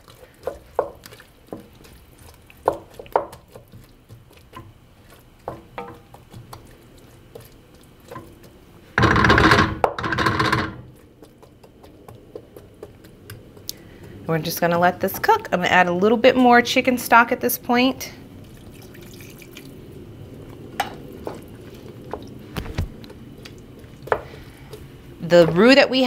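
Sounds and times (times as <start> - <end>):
wooden spoon tapping pot: 0.4 - 1.7, 2.6 - 4.8, 5.4 - 6.7, 24.0 - 26.0.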